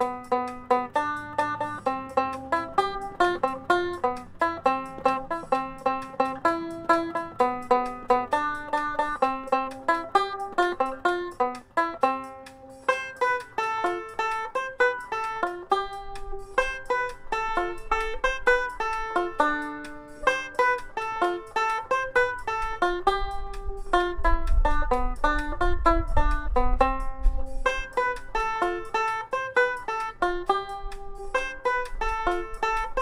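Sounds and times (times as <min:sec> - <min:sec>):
tenor banjo melody: 0:00.0 - 0:33.0
low rumble: 0:22.5 - 0:28.6.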